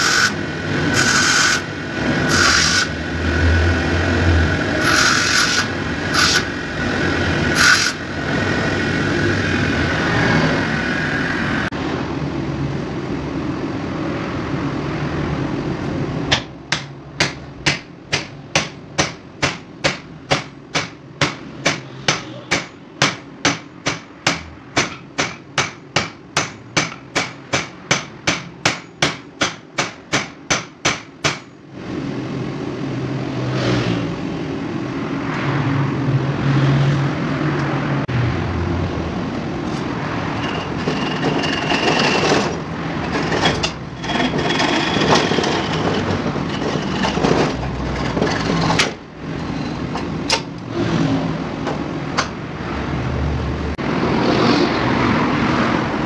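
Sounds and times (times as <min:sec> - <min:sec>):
bench grinder grinding metal: 0:00.0 - 0:03.5, 0:04.6 - 0:08.1, 0:40.4 - 0:48.6
steady noise: 0:00.0 - 0:17.2.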